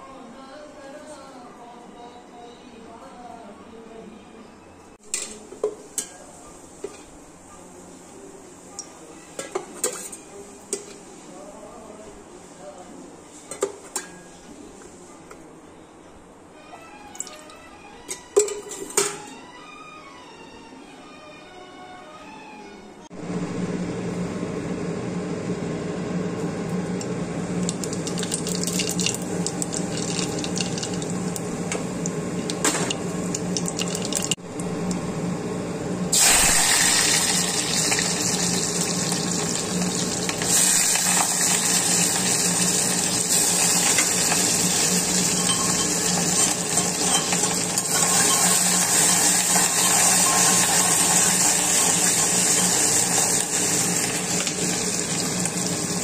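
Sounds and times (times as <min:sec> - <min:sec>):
hot oil sizzling: 0:27.2 - 0:35.0, 0:36.1 - 0:56.0
onions frying in oil: 0:27.5 - 0:34.9, 0:36.1 - 0:56.0.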